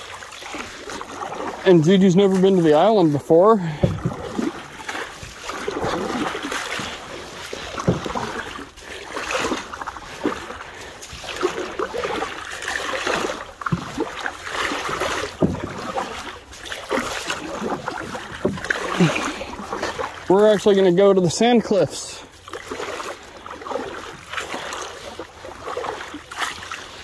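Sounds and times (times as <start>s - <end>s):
paddles swishing through water: 0.0s - 27.0s.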